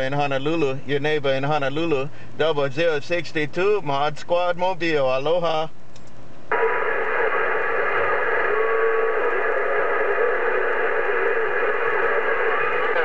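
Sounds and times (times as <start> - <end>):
radio static hiss: 6.4 - 13.0.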